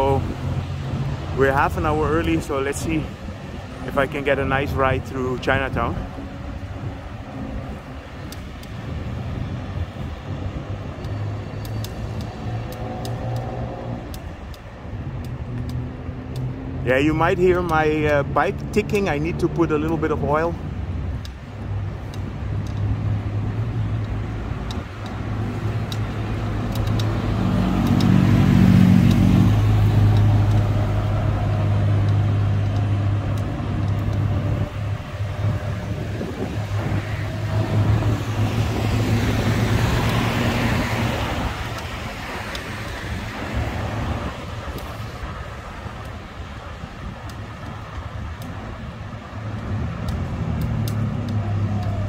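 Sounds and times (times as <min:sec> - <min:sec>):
vehicle engine humming: 0:00.0 - 0:52.0
vehicle passing: 0:22.5 - 0:52.0.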